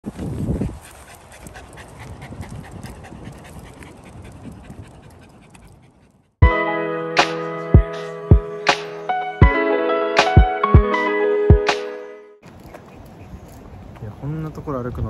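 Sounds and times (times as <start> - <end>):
dog panting quickly: 0.5 - 6.4
music: 6.4 - 12.4.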